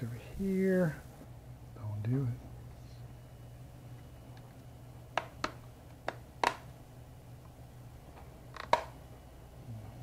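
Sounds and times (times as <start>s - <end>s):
faint steady hum: 0.0s - 10.0s
plastic clips snapping into place: 5.2s - 6.7s.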